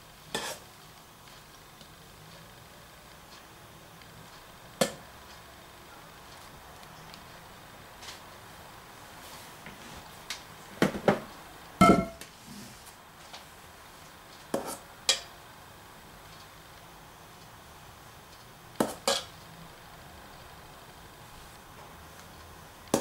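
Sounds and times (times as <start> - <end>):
metal spoon knocking on pot and bowl: 11.8 - 12.2.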